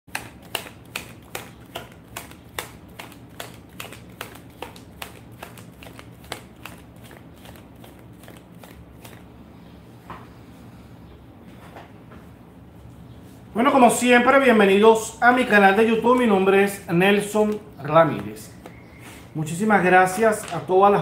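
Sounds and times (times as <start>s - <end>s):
cards being shuffled: 0.1s - 9.3s, 17.2s - 20.7s.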